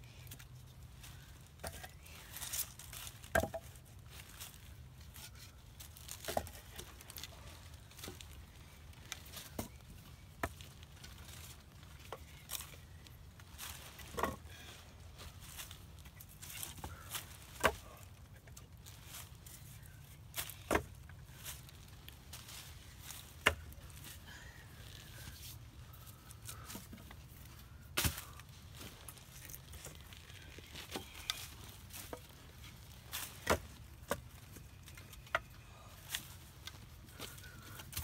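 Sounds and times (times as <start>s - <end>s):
firewood logs knocking together: 3.1s - 3.8s, 6.1s - 7.1s, 9.3s - 11.1s, 14.0s - 14.6s, 16.4s - 18.7s, 20.4s - 21.6s, 23.1s - 23.8s, 33.1s - 38.0s.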